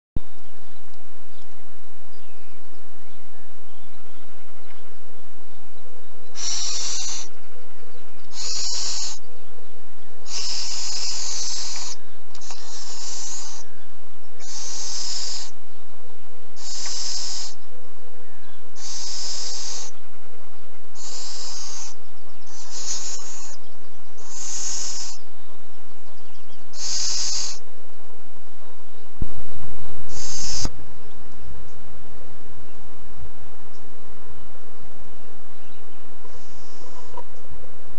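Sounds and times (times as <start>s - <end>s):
owl chicks hissing: 6.1s - 31.4s, 36.0s - 37.6s.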